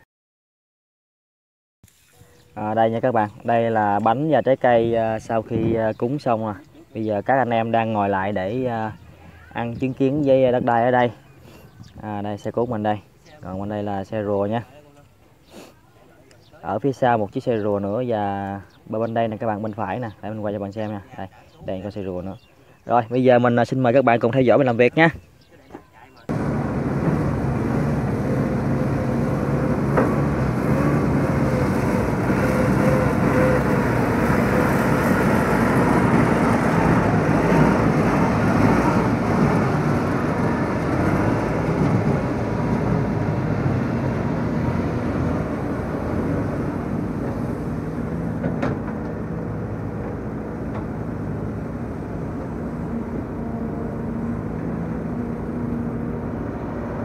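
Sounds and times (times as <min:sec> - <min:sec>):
excavator diesel engine under load: 0:26.3 - 0:57.0
hydraulics working: 0:26.3 - 0:57.0.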